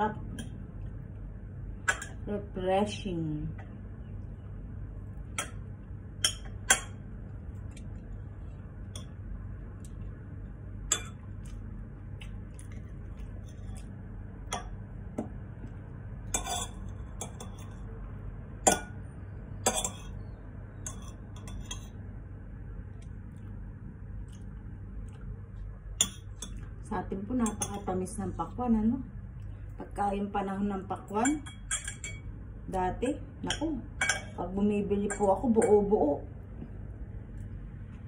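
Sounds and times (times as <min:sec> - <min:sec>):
metal spoon clinking on ceramic bowl: 0:10.9 - 0:11.2, 0:16.3 - 0:17.7, 0:19.6 - 0:20.2, 0:26.0 - 0:26.6, 0:27.4 - 0:27.9, 0:31.1 - 0:32.3, 0:33.4 - 0:34.4, 0:35.1 - 0:35.9.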